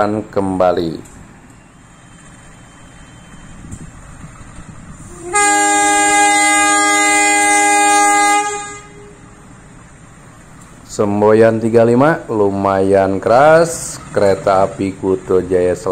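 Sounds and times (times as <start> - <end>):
locomotive horn blast: 5.0 - 9.6.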